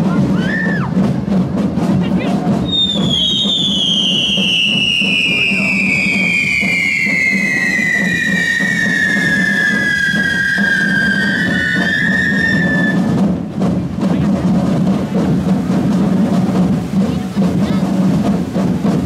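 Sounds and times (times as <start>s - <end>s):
firework fountains crackling: 0.0s - 19.0s
firework whistle falling in pitch: 2.7s - 13.2s.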